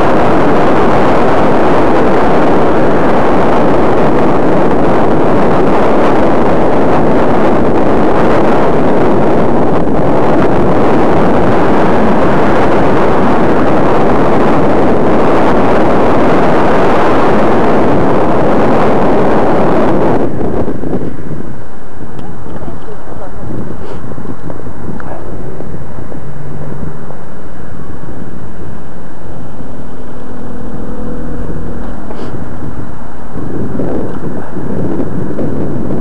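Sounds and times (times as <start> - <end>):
wind rushing on microphone: 0.0 - 36.0.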